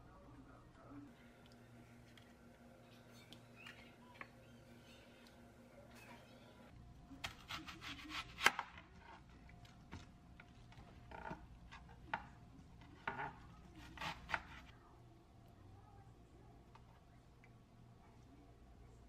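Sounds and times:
knife cutting onion: 7.2s - 9.0s, 13.0s - 14.7s.

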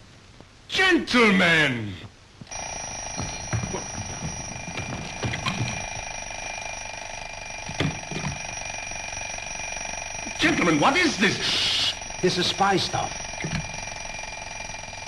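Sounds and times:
bell ringing: 2.5s - 15.0s.

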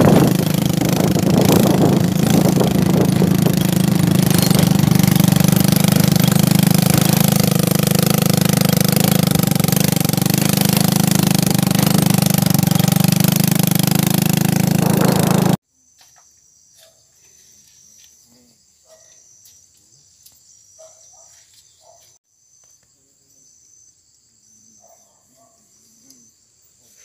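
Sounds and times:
wind noise: 0.0s - 6.4s, 14.7s - 15.5s
motorbike engine: 0.0s - 15.6s
insects chirping trill: 22.3s - 25.1s.

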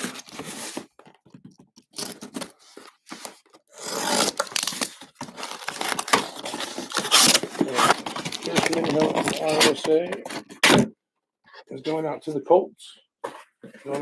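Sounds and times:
tape tearing: 1.8s - 10.9s
box cutter slicing cardboard: 3.7s - 4.9s.

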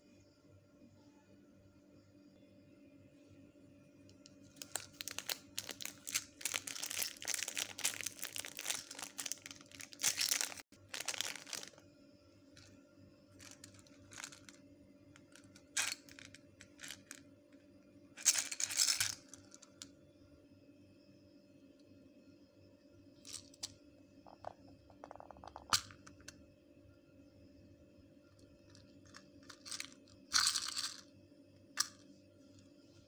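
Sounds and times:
plastic shrink-wrap crinkling: 4.6s - 11.8s.

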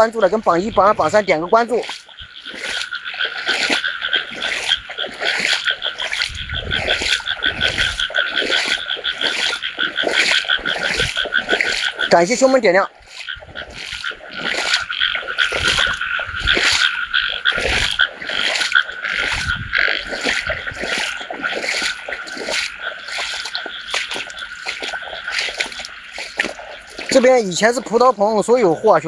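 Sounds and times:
frogs croaking in chorus: 0.0s - 29.0s.

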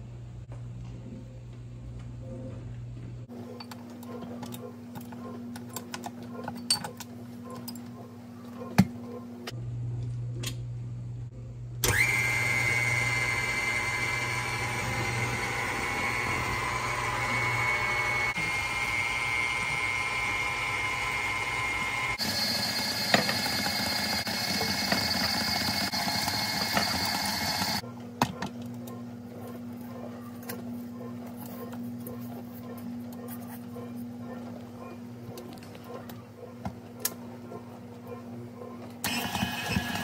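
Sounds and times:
stand mixer running: 11.8s - 27.8s, 39.1s - 40.0s.

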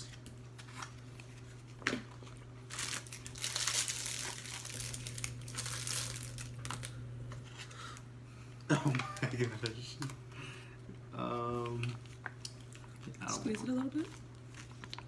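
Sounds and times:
foil pouch crinkling and tearing: 2.6s - 7.0s.

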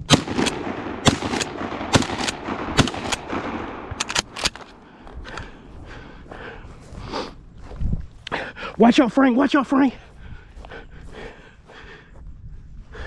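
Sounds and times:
shotgun shots: 0.0s - 4.8s.

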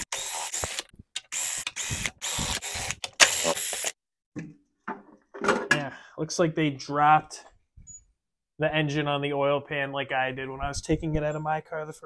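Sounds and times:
impact driver bursts: 0.0s - 4.0s.

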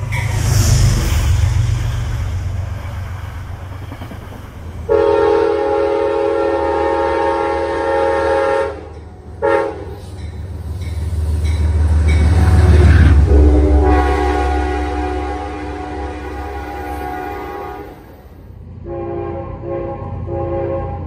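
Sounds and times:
train rumbling: 0.0s - 21.0s
locomotive horn blasts: 4.9s - 10.0s, 13.2s - 18.2s, 18.8s - 21.0s.

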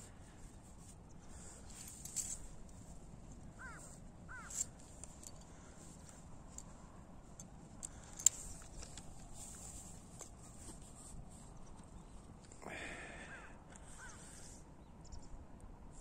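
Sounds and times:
footsteps through dry stubble: 0.0s - 7.3s
crow cawing: 3.6s - 4.6s, 13.2s - 14.4s.

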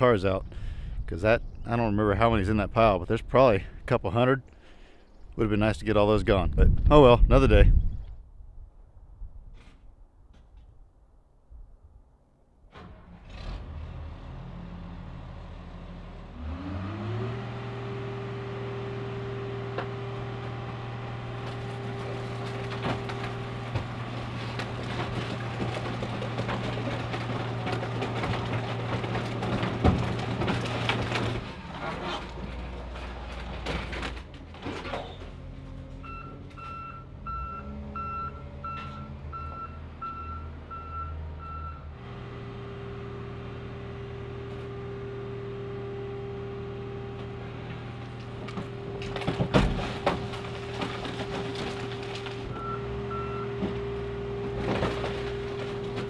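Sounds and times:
car crusher engine: 12.7s - 56.0s
metal and glass crunching: 21.4s - 35.4s, 48.3s - 52.6s.

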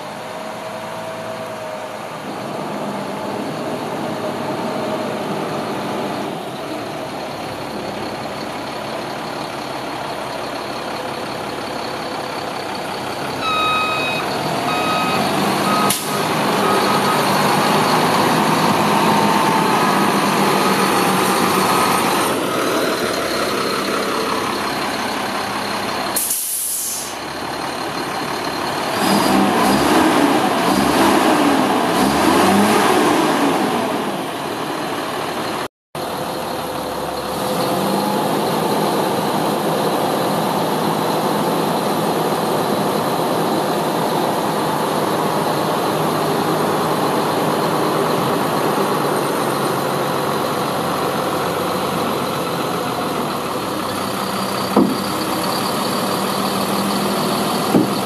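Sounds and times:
diesel truck engine running: 0.0s - 58.0s
backup alarm beeping: 13.4s - 18.0s
air hiss: 26.2s - 27.2s.

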